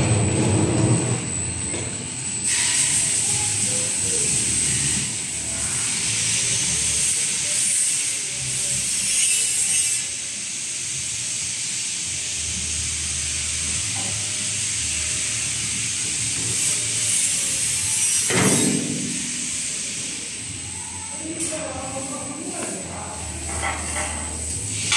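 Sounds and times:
drum rolling on conveyor rollers: 0.0 - 2.1
machinery hiss: 2.4 - 24.9.

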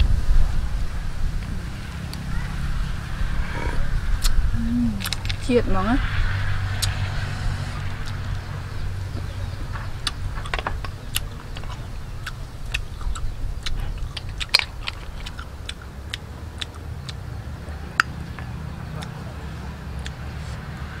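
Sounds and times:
steady low rumble: 0.0 - 21.0
snail shells clicking together: 10.0 - 17.2.

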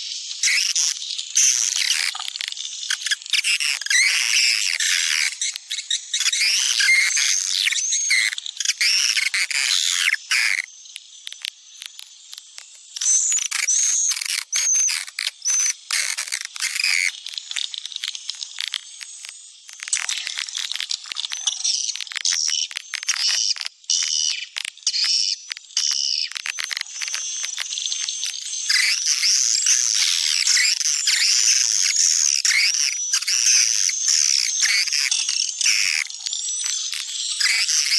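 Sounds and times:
swiftlet twittering and clicks: 0.3 - 37.9.

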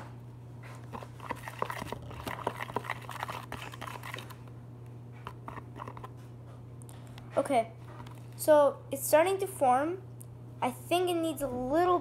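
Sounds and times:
spoon stirring slime: 0.7 - 4.4, 5.2 - 6.3.

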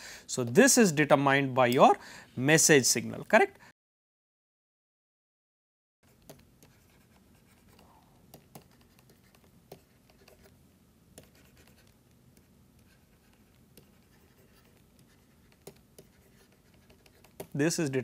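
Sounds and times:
stylus scratching on pen tablet: 6.1 - 10.6, 11.2 - 17.6
low steady hiss: 6.1 - 18.0.

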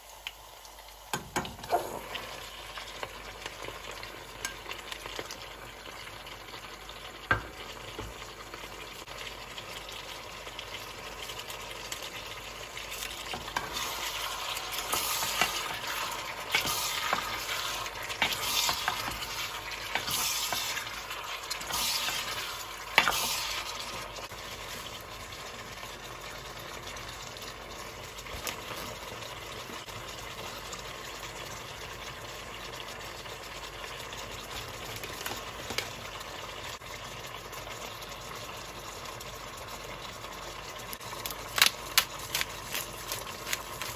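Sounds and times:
squid sizzling in a saucepan: 0.0 - 43.9
spatula stirring: 12.9 - 24.9, 42.2 - 43.9.

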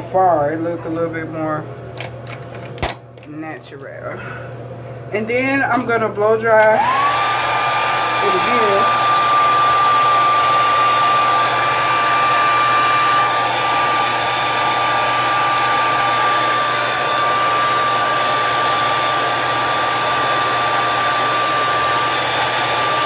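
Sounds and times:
hair dryer running: 6.6 - 23.0.

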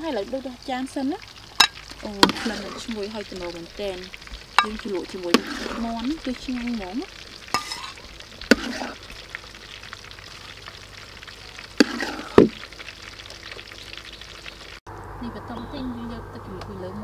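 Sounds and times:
food frying in oil: 0.0 - 14.8
utensil clinking glass bowl: 7.5 - 8.0.

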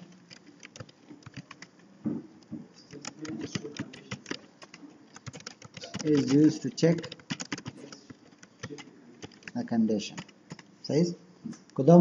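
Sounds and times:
keyboard typing clicks: 0.0 - 10.7.

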